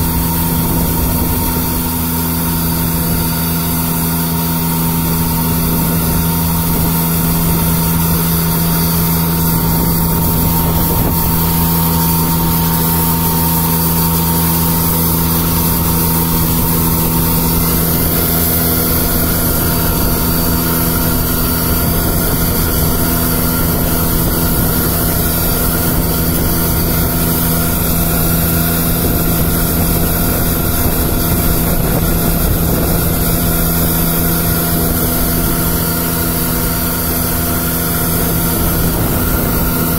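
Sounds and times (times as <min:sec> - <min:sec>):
street sweeper engine drone: 0:00.0 - 0:39.9.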